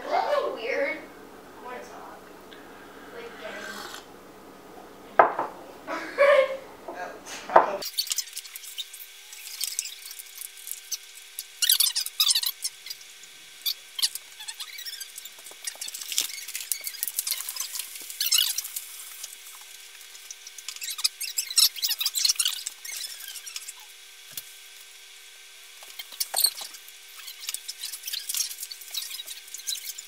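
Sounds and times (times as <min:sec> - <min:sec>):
faint steady hum: 0:00.0 - 0:30.0
squeaks and clicks: 0:07.8 - 0:18.8, 0:19.5 - 0:23.9, 0:25.8 - 0:30.0
high-pitched crinkling: 0:07.8 - 0:24.8, 0:25.8 - 0:30.0.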